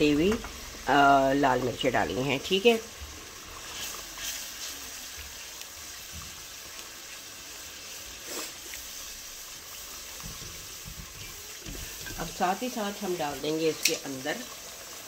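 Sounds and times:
masala sizzling and bubbling in oil: 0:00.0 - 0:15.0
wooden spoon stirring: 0:03.1 - 0:12.9.

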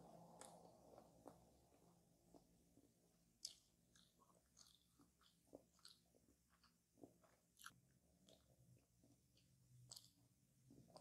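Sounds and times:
chewing crisp pastry: 0:00.3 - 0:11.0.

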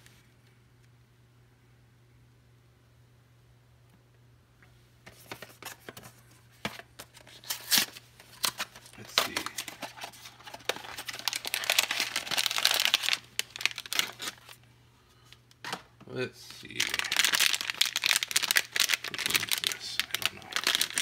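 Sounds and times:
wrapper crinkling and tearing: 0:07.1 - 0:14.6, 0:16.5 - 0:21.0.

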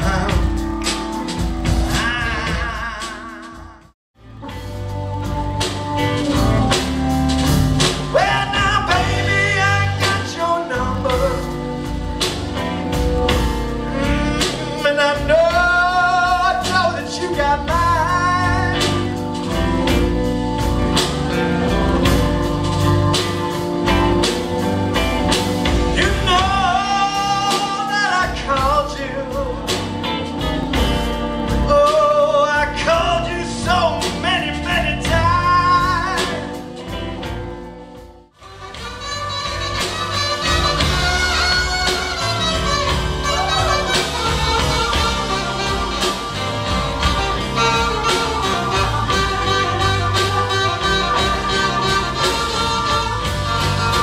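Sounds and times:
lead vocal singing: 0:00.0 - 0:04.0, 0:04.8 - 0:37.0
drums beating: 0:00.0 - 0:54.0
electric guitar: 0:00.0 - 0:54.0
saxophone: 0:00.0 - 0:54.0.

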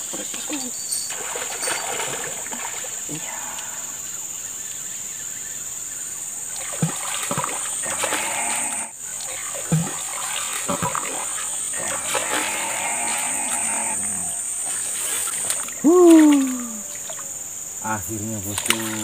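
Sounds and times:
fish splashing at water surface: 0:01.1 - 0:03.8, 0:06.6 - 0:13.8, 0:14.6 - 0:17.2, 0:18.6 - 0:19.0.

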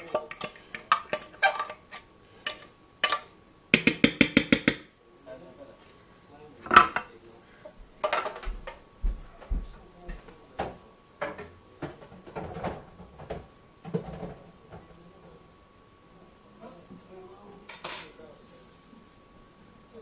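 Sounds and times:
kitchen cupboards and utensils clattering: 0:00.0 - 0:03.3, 0:06.7 - 0:07.1, 0:08.0 - 0:08.8, 0:10.6 - 0:14.8.

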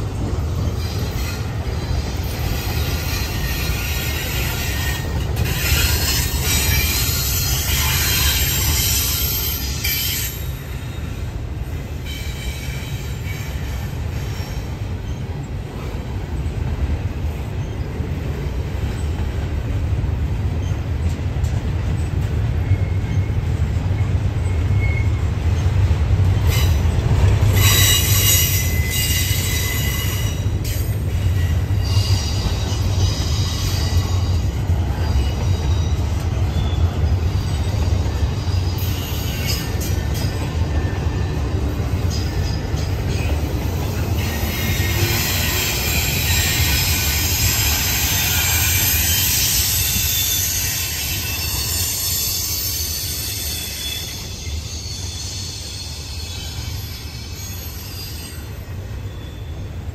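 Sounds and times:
freight train rumbling on rails: 0:00.0 - 0:59.9
high-pitched wheel squeal: 0:26.4 - 0:41.3, 0:44.2 - 0:59.7.

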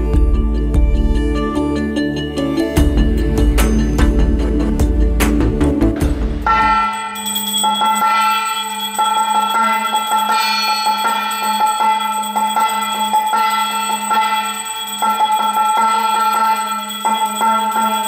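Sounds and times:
steady low drone: 0:00.0 - 0:06.9
bells ringing rapidly: 0:02.5 - 0:05.1, 0:06.4 - 0:18.0.

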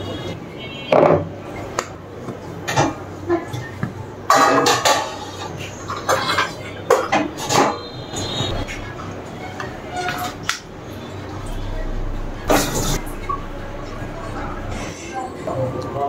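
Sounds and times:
utensils clinking against dishes: 0:02.6 - 0:10.7, 0:12.5 - 0:13.3.

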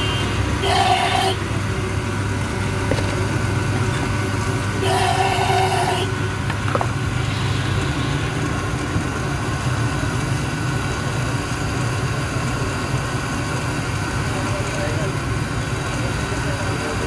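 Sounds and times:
low mechanical hum: 0:00.0 - 0:12.7.

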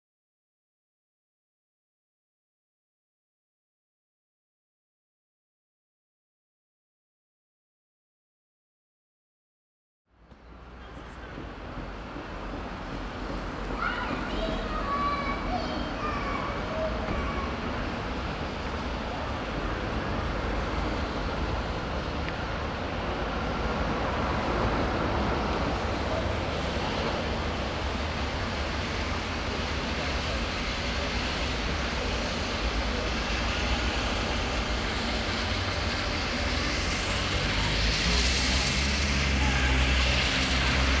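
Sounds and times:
steam locomotive rumble: 0:10.3 - 0:41.0
steam hiss: 0:10.6 - 0:41.0.

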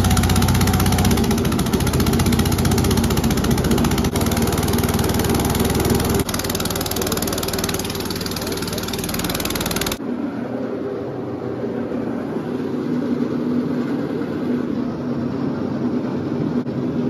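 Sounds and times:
engine clattering and humming: 0:00.0 - 0:10.0.

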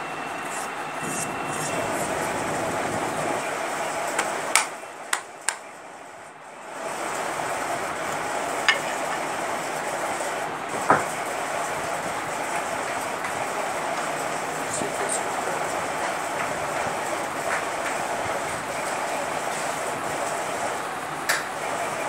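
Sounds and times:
steady rushing background noise: 0:00.0 - 0:22.0.

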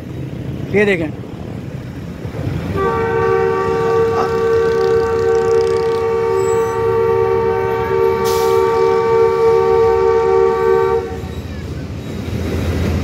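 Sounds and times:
locomotive air horn blast: 0:02.7 - 0:11.4.

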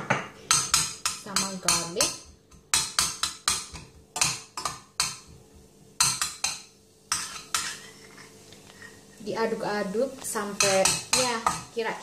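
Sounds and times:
spatula knocking on saucepan: 0:00.0 - 0:07.7
onion and garlic sizzling in oil: 0:00.3 - 0:12.0.

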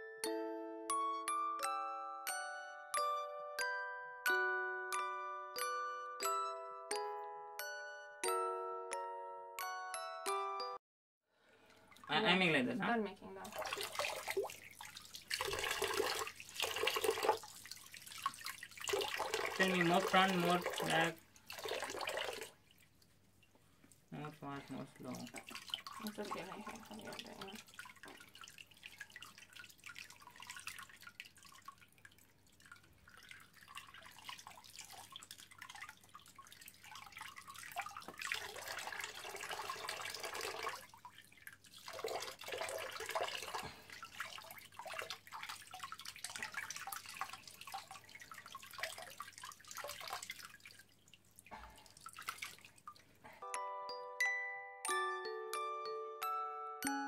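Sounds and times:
bell-like music tune: 0:00.0 - 0:10.8, 0:53.4 - 0:57.0
water splashing in a plastic basin: 0:11.6 - 0:53.3.

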